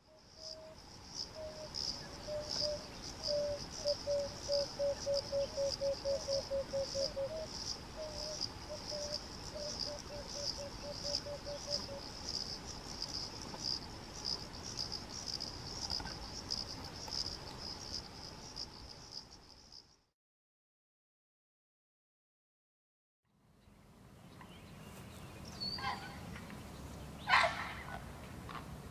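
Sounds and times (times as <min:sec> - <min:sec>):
insects trilling: 0:00.0 - 0:20.1
wood dove cooing: 0:01.4 - 0:12.0.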